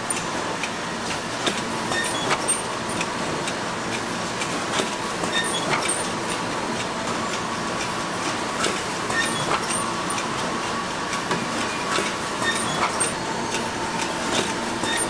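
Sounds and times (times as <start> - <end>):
steady machinery noise: 0.0 - 15.0.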